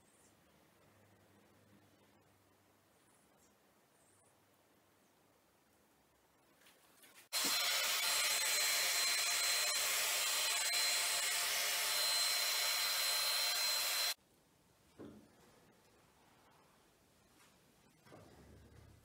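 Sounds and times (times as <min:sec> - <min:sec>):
hot air gun blowing: 0:07.3 - 0:14.2.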